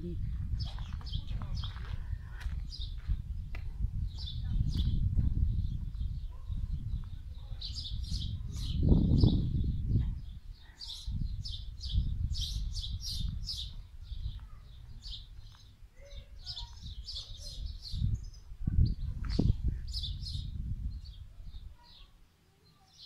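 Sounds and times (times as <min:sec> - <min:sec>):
songbirds chirping: 0:00.0 - 0:23.0.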